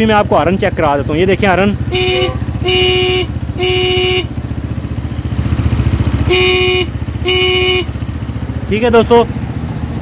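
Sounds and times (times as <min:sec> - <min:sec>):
motorcycle engine idling: 0:00.0 - 0:10.0
motorcycle horn blasts: 0:01.8 - 0:04.4, 0:06.2 - 0:08.1.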